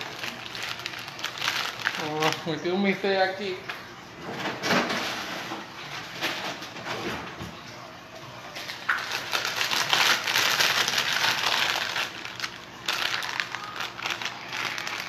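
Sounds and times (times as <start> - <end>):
plastic bag crinkling: 0.0 - 3.2, 8.8 - 15.0.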